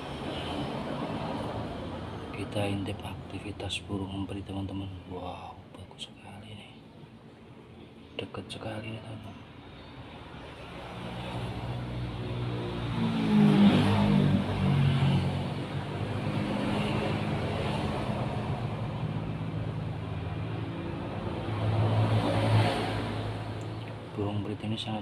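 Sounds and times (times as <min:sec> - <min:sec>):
vehicle engine hum: 0:09.2 - 0:25.0.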